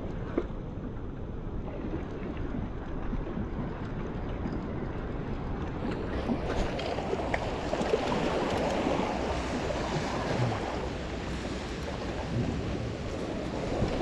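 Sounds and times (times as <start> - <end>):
waves splashing against rocks: 5.8 - 14.0.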